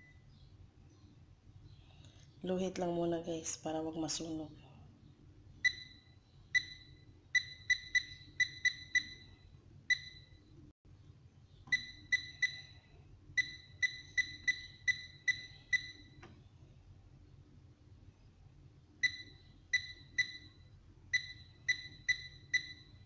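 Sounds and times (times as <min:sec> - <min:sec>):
appliance button beeps: 0:05.6 - 0:10.3, 0:11.7 - 0:12.7, 0:13.4 - 0:16.2, 0:19.0 - 0:20.5, 0:21.2 - 0:23.0.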